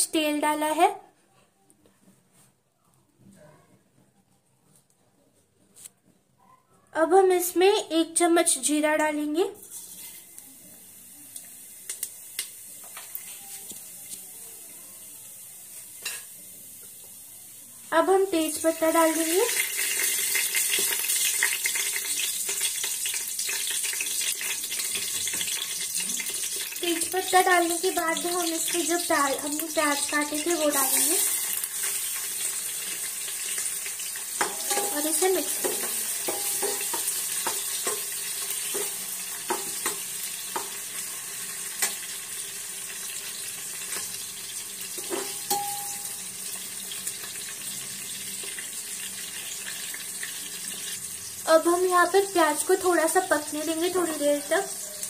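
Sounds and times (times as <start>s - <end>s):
spices sizzling in hot oil: 8.2s - 55.0s
metal spoon clinking on pot: 34.4s - 38.1s, 45.0s - 46.2s.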